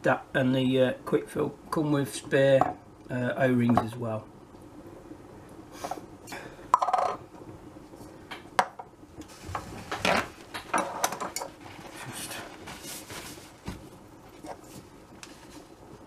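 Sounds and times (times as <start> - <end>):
paper towel rustling: 11.6 - 16.0.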